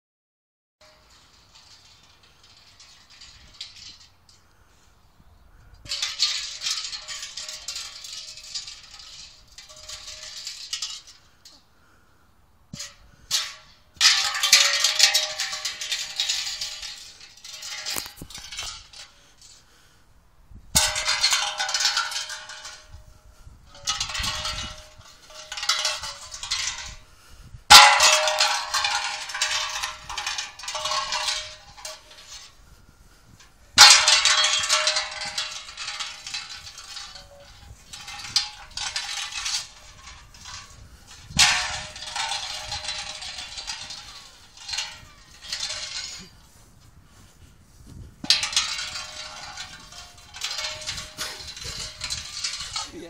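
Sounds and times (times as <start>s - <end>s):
metal keg clanging on grass: 0.8s - 4.8s, 5.6s - 11.6s, 12.7s - 19.7s, 20.7s - 53.0s.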